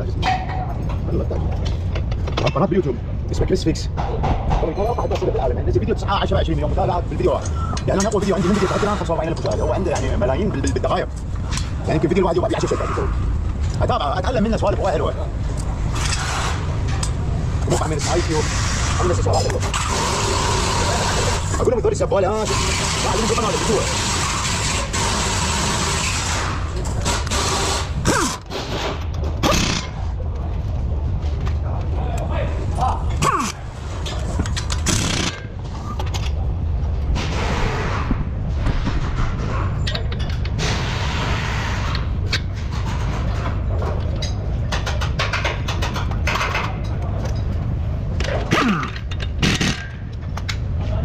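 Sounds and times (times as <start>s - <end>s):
pneumatic impact wrench: 15.9s - 17.0s, 18.0s - 21.6s, 22.4s - 30.0s, 34.5s - 35.9s, 48.4s - 50.0s.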